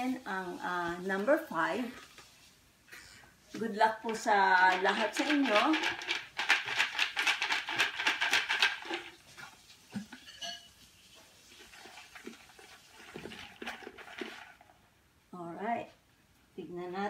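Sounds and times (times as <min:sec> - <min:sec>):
paper slips rattling in plastic jar: 0:04.0 - 0:10.2, 0:11.6 - 0:14.7.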